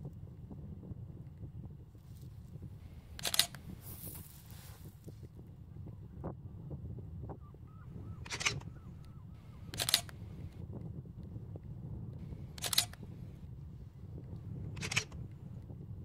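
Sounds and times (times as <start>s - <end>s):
camera shutter clicks: 3.2s - 4.3s, 9.4s - 10.2s, 12.5s - 13.0s, 14.8s - 15.2s.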